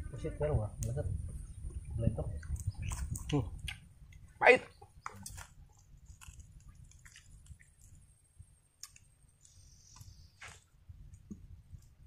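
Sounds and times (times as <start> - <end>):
mouth clicks while eating: 2.4 - 4.2.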